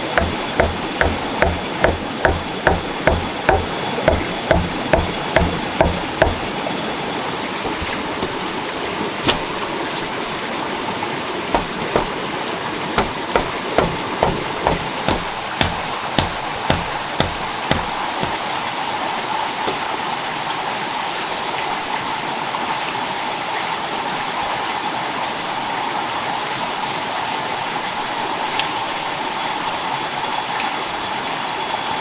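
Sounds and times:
stone knocking on wooden stake: 0.0s - 6.6s, 7.7s - 8.5s, 11.6s - 12.2s, 13.0s - 18.4s.

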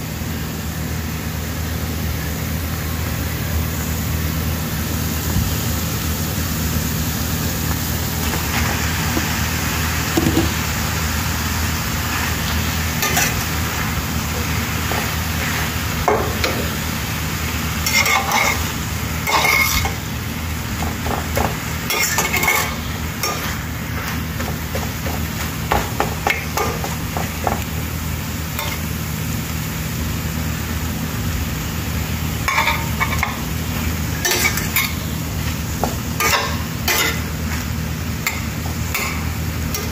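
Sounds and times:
food sizzling in a frying pan: 0.1s - 39.9s
metal spatula scraping a pan: 17.8s - 20.0s, 21.9s - 23.6s, 34.2s - 35.0s.

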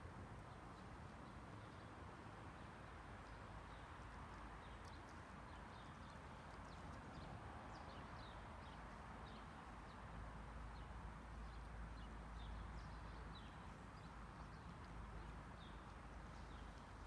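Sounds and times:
small birds chirping: 3.2s - 10.0s, 10.6s - 17.0s.

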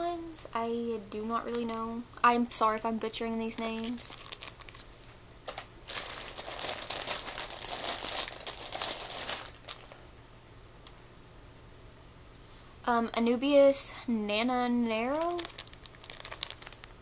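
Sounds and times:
plastic bags crinkling: 3.4s - 10.1s, 15.1s - 17.0s.

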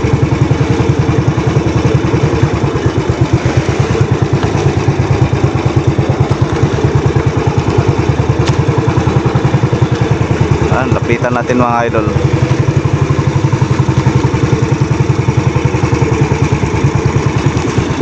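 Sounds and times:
boat engine running: 0.0s - 18.0s.

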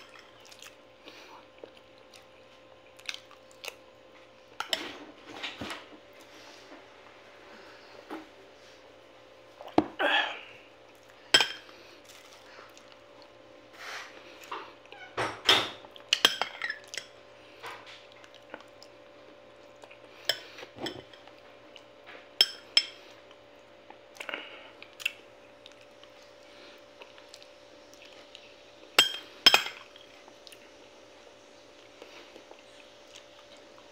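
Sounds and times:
eating sounds: 0.0s - 3.9s
metal spoon clinking on glass bowl: 29.0s - 29.8s.

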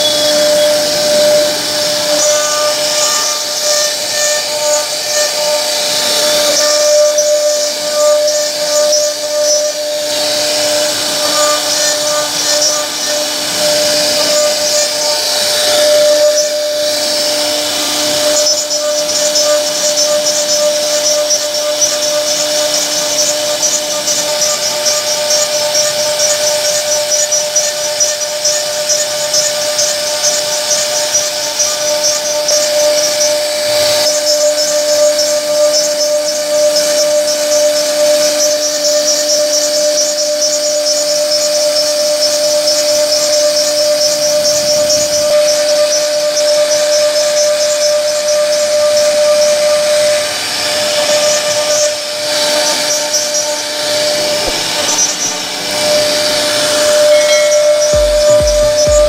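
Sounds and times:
bit hissing cutting wood: 0.0s - 58.9s
router spindle whine: 0.0s - 59.0s.

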